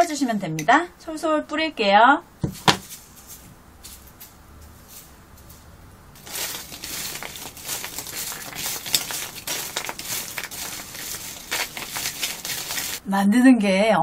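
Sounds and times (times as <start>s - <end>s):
sugar sprinkling: 2.8s - 13.0s
crunchy scraping with clicks: 6.2s - 13.0s
paper towel crinkling: 6.2s - 13.0s.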